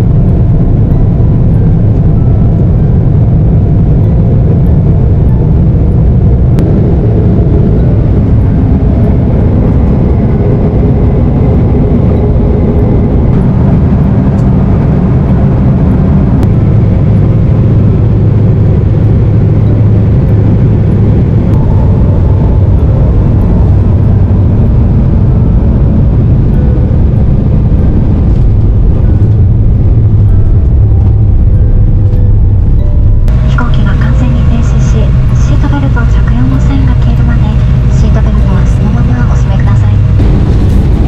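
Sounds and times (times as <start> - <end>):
jet engine cabin rumble: 0.0 - 41.0.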